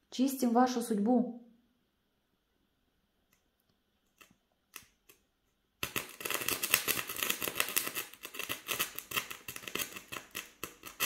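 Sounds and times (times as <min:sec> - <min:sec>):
fire crackling and sputtering: 0:05.8 - 0:11.0.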